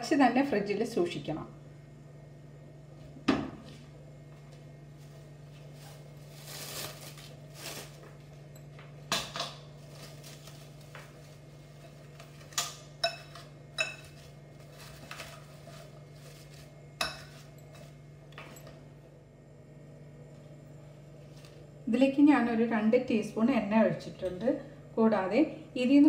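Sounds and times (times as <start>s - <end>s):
steady low hum: 0.0s - 26.0s
cling film crinkling: 5.6s - 8.2s, 9.8s - 12.6s.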